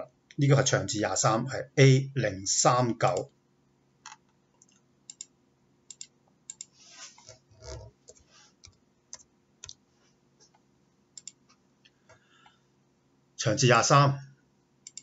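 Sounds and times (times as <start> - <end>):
computer mouse clicks: 4.0 - 5.3, 5.9 - 9.8, 11.2 - 12.2.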